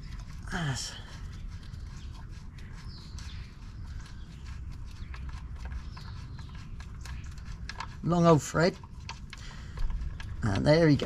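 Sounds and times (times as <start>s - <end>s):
drain plug clicks and scrapes: 5.1s - 11.0s.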